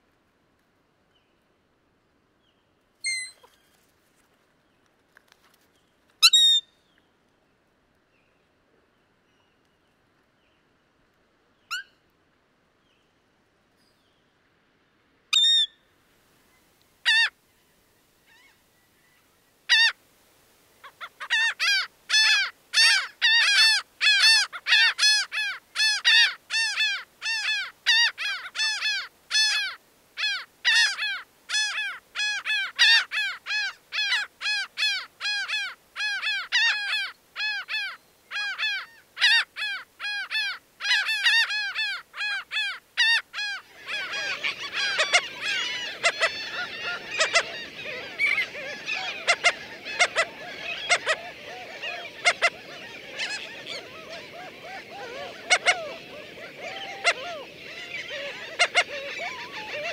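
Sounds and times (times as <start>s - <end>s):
gull laugh-like calls: 43.0s - 59.9s.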